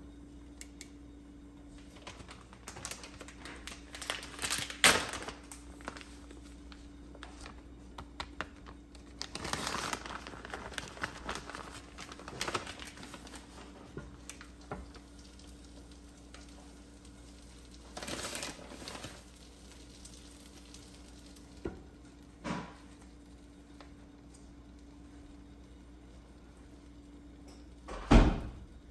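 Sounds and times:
steady low hum: 0:00.0 - 0:28.9
plastic bag crinkling: 0:01.8 - 0:21.6.

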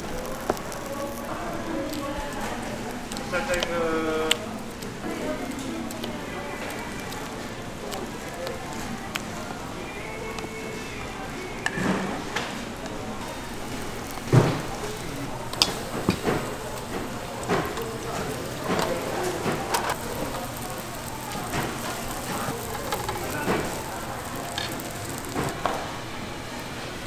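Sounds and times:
batter sizzling in hot oil: 0:00.0 - 0:27.0.

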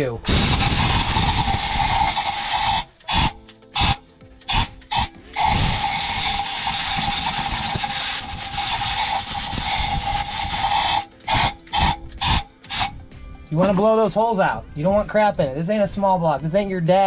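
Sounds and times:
compressed air blow gun blasting: 0:00.3 - 0:13.0.

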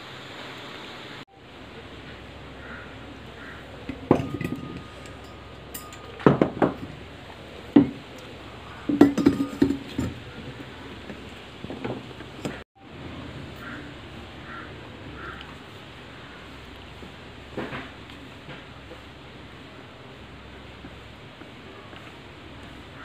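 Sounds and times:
metal clinking: 0:03.8 - 0:08.0, 0:08.8 - 0:10.4.

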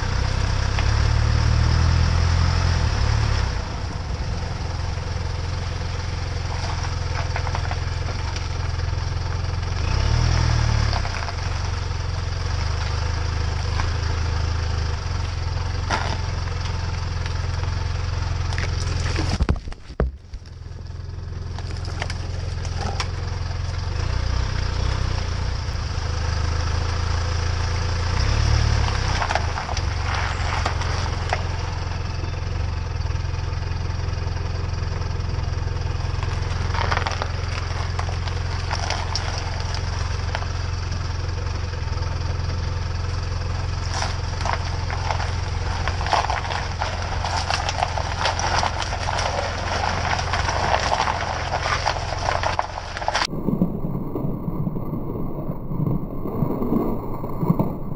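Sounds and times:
engine idling: 0:00.0 - 0:57.9
tyres crunching on ice: 0:05.2 - 0:24.1, 0:28.8 - 0:32.2, 0:35.9 - 0:41.2, 0:42.6 - 0:57.9.

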